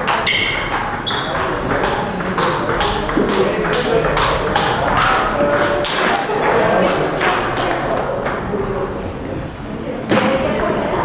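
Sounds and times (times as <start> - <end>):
table tennis ball clicking: 0.1 - 8.9.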